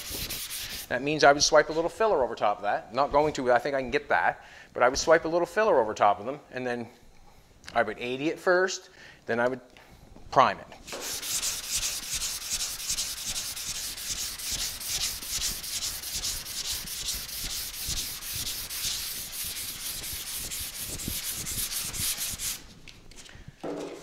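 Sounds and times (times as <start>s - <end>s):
sandpaper rubbing on metal panel: 0.0s - 0.9s, 10.9s - 22.7s.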